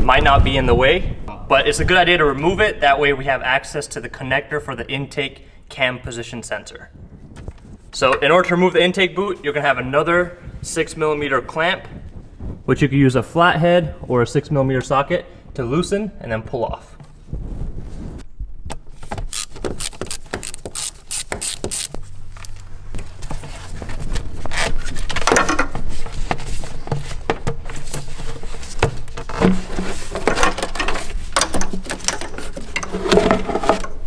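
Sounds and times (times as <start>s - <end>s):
rubber rubbing and scraping: 17.0s - 34.0s.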